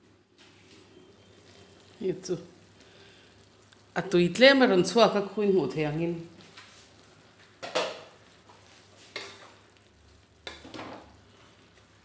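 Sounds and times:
faint sizzle of frying: 0:00.0 - 0:12.0
wooden spatula scraping metal wok: 0:07.9 - 0:09.7.

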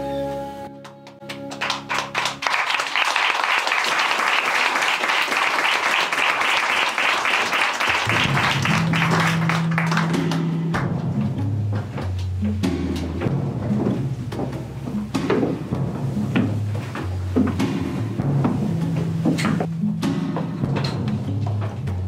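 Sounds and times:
low music tones: 0:00.0 - 0:02.5, 0:08.0 - 0:22.0
audience applauding: 0:00.8 - 0:10.9.

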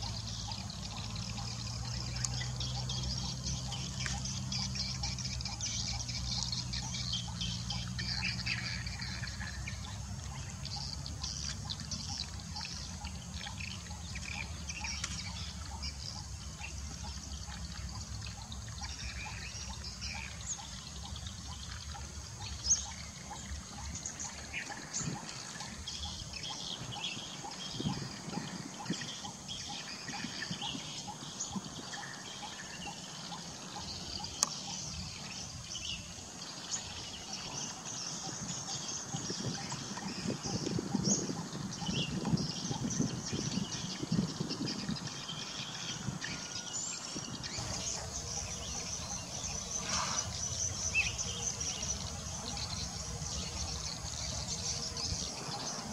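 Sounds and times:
birds chirping: 0:00.0 - 0:44.2, 0:45.2 - 0:55.9
rustling and crackling vegetation: 0:47.5 - 0:55.9.

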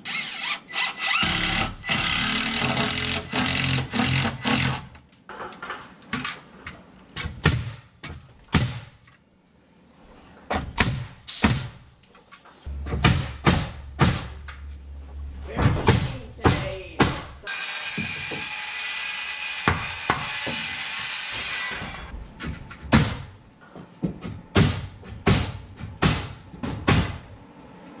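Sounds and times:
background music with bass: 0:12.7 - 0:17.5
cordless drill running: 0:17.5 - 0:22.0
knocks and taps of framing work: 0:22.4 - 0:27.1.

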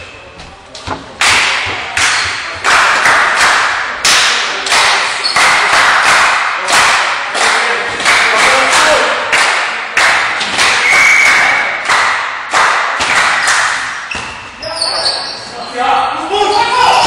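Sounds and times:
hands clapping in a gym hall: 0:00.7 - 0:14.2.

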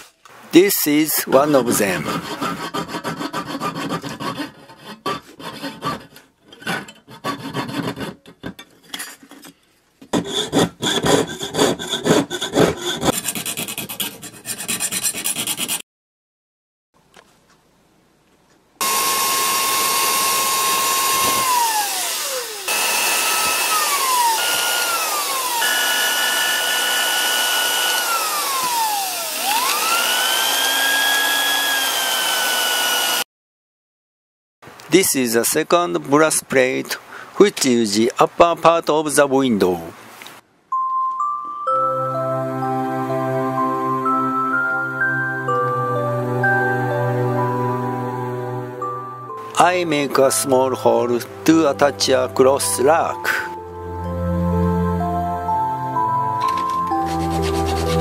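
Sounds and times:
saw cutting metal plate: 0:01.6 - 0:08.2, 0:18.8 - 0:33.3, 0:56.5 - 0:58.0
electric drill boring metal: 0:18.8 - 0:33.3.

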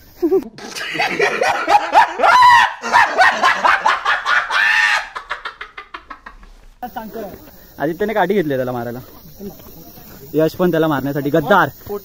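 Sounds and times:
young men shouting and hooting: 0:01.1 - 0:05.6
long held yell: 0:02.2 - 0:03.0.

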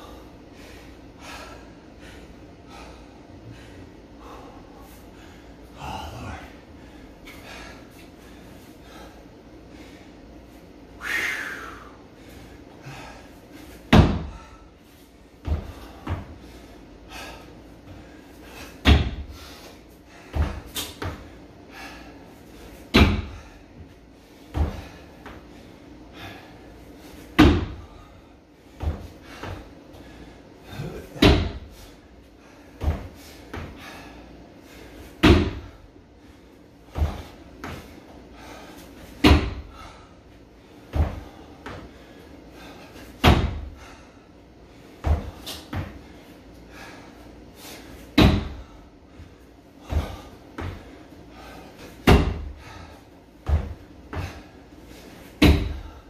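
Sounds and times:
heavy breath: 0:00.0 - 0:10.4, 0:11.0 - 0:56.0
loud thud landing on wooden box: 0:13.9 - 0:14.4, 0:18.8 - 0:19.2, 0:22.9 - 0:23.4, 0:27.4 - 0:27.8, 0:31.2 - 0:31.6, 0:35.2 - 0:35.7, 0:39.2 - 0:39.6, 0:43.2 - 0:43.6, 0:48.2 - 0:48.6, 0:52.0 - 0:52.5, 0:55.4 - 0:55.9.

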